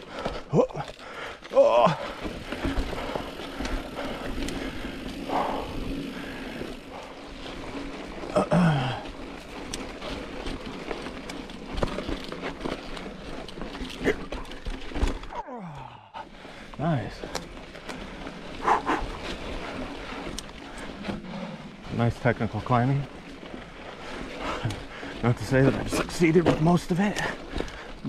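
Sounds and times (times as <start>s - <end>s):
bike knocking and rattling: 0.0s - 28.0s
bike tyres crunching over rock: 0.0s - 28.0s.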